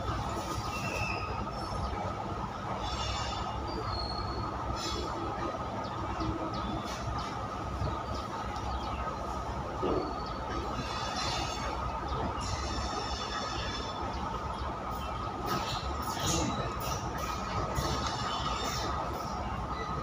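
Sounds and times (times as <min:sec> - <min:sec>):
train wheels rumbling on rail: 0:00.0 - 0:20.0.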